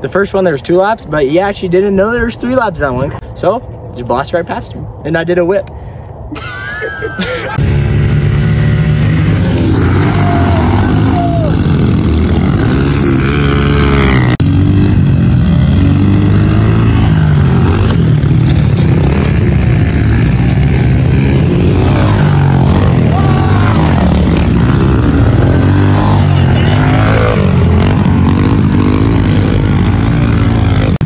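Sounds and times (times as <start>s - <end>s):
pit bike engines revving: 6.4s - 31.0s.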